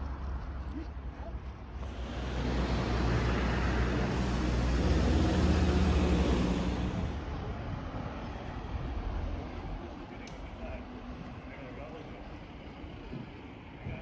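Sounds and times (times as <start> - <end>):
motor vehicle passing close by: 1.8 - 7.4.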